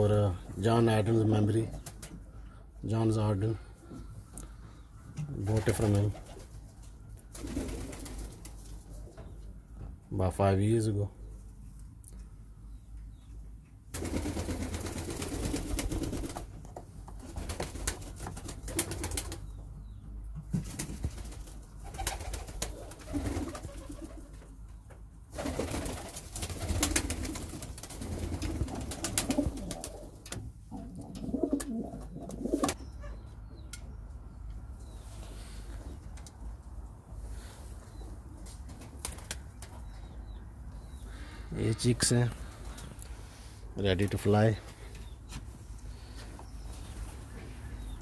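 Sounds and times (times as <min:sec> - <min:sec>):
pigeons cooing: 0:26.5 - 0:33.6.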